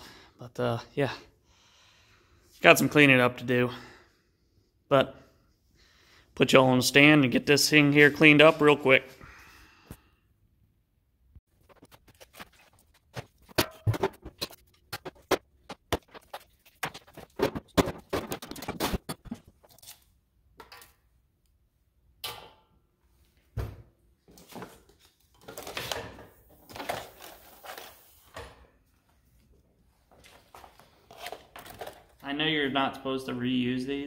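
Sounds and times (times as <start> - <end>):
plastic wrapping rustling: 11.5 - 20.0
tools clattering on wooden workbench: 13.2 - 15.4.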